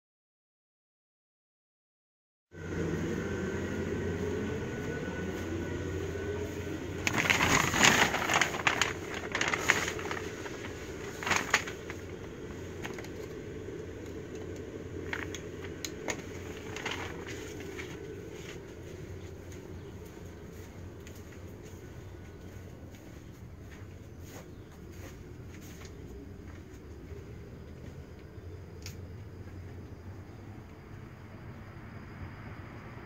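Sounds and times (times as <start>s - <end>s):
low mechanical drone: 2.5s - 33.0s
rustling and crackling: 6.9s - 29.8s.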